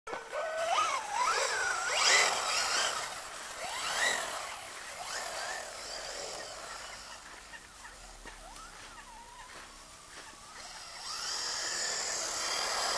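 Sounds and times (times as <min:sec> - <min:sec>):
electric motor whining: 0:00.1 - 0:12.9.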